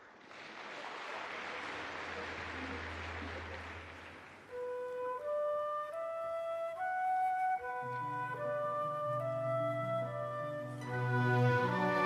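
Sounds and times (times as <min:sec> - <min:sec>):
flute melody: 0:04.5 - 0:12.0.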